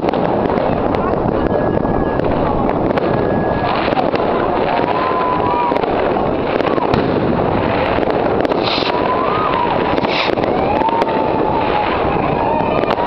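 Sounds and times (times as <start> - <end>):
fireworks crackling and banging: 0.0 - 13.0
hiss bursts: 8.5 - 9.0, 10.0 - 10.4.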